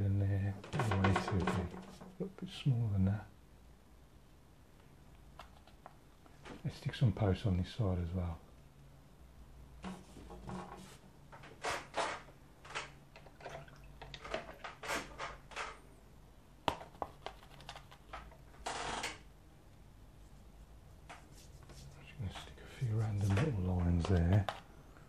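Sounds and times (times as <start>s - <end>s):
faint low hum: 0.0s - 25.0s
paintbrush strokes on paper: 21.2s - 24.1s
brush scraping: 21.2s - 24.6s.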